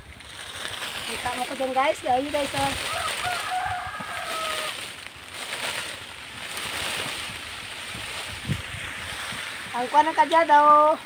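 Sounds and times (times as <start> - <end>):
leaves and branches rustling: 0.0 - 11.0.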